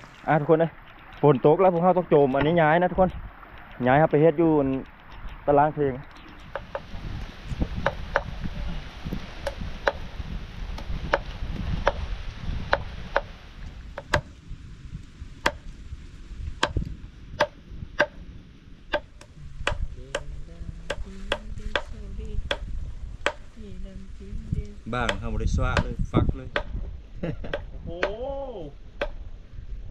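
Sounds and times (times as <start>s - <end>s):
knife chopping on wooden board: 7.8s - 8.3s, 9.4s - 10.0s, 18.9s - 20.3s, 22.5s - 23.4s, 25.0s - 26.8s, 29.0s - 29.2s.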